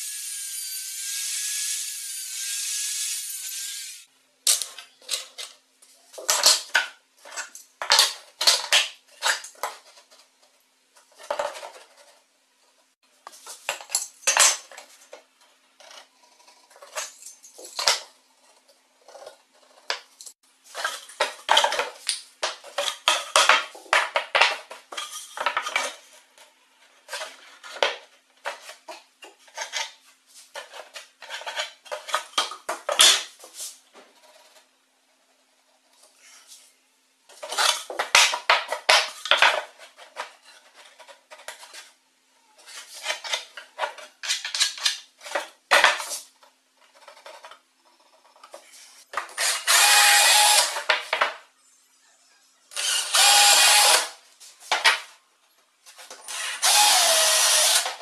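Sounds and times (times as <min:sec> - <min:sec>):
angle grinder cutting metal: 0:49.3 - 0:50.9, 0:52.7 - 0:54.2, 0:56.3 - 0:58.0.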